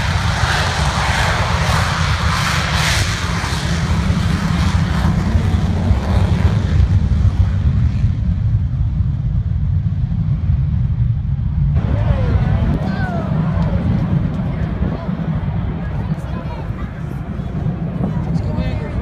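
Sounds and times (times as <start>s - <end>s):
jet engine rumble: 0.0s - 19.0s.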